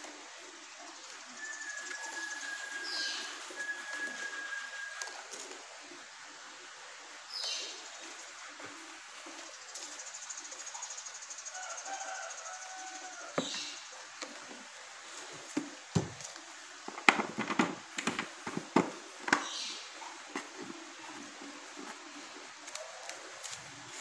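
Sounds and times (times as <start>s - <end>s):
plastic clicks and knocks: 16.9s - 19.5s.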